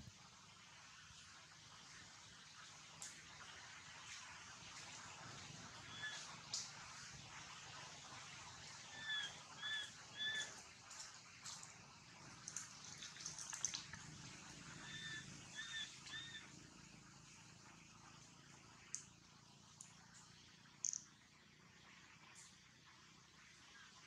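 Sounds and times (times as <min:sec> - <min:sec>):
bird calling: 0:05.9 - 0:06.2, 0:08.9 - 0:10.6, 0:14.8 - 0:16.5.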